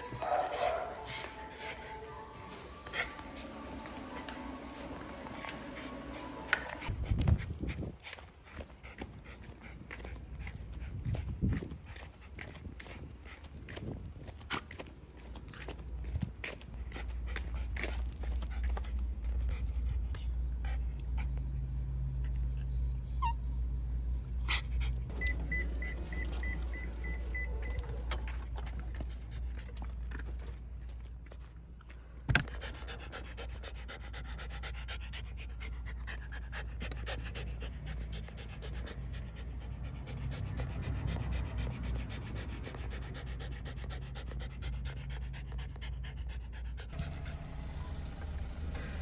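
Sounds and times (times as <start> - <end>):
dog panting: 5.4 - 31.5, 32.4 - 47.3
short beeps: 25.2 - 27.8.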